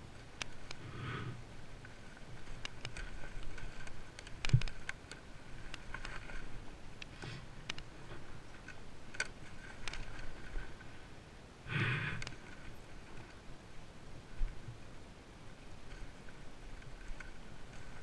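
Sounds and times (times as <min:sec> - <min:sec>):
dirt bike clicks and knocks: 0:02.6 - 0:06.2.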